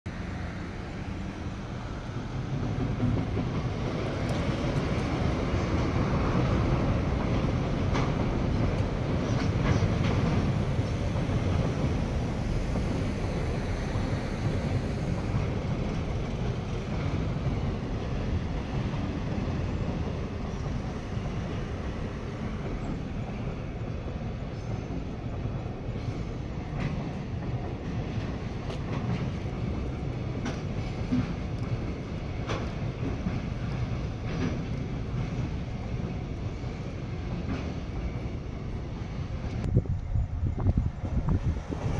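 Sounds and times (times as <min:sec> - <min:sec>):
freight train rumbling past: 0:00.1 - 0:41.9.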